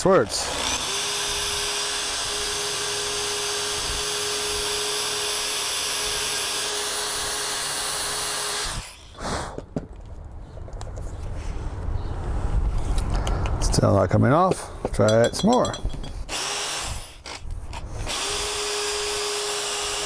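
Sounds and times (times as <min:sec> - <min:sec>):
electric drill cutting aluminium: 0:00.0 - 0:09.2, 0:16.3 - 0:20.0.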